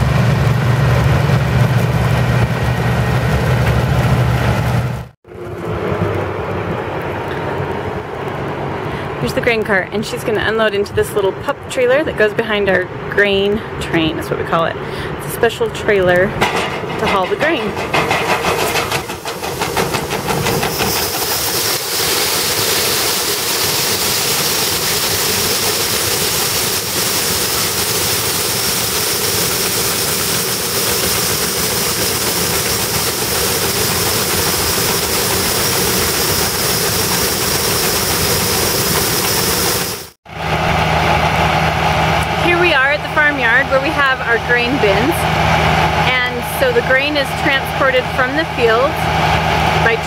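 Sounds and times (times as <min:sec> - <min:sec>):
tractor engine running: 0:00.0 - 0:11.2, 0:13.2 - 0:50.0
grain pouring into metal trailer: 0:17.8 - 0:40.1.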